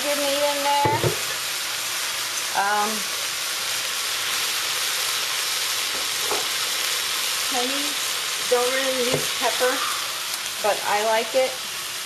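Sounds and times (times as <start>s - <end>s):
meat and vegetables sizzling in wok: 0.0s - 12.0s.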